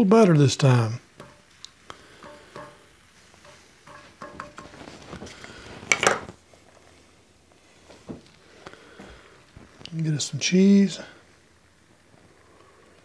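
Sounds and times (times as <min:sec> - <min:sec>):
wooden spatula scraping skillet: 0:01.2 - 0:06.9
kitchenware clatter: 0:02.2 - 0:05.0, 0:05.9 - 0:06.3.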